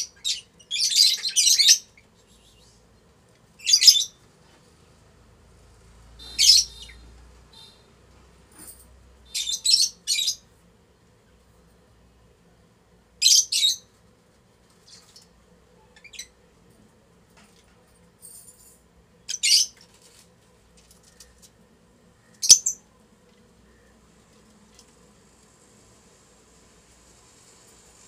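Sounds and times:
lovebirds chirping shrilly: 0:06.2 - 0:07.9.

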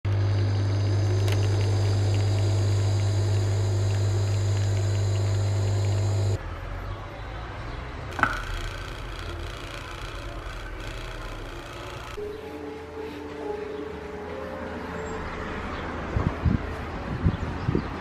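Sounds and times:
coffee machine humming: 0:00.0 - 0:06.4, 0:08.2 - 0:12.3.

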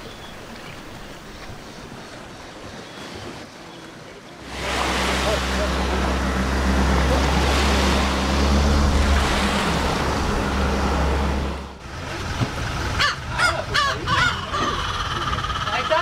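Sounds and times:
small waves on sandy beach: 0:00.0 - 0:13.4
gull harsh calls: 0:13.0 - 0:16.0.

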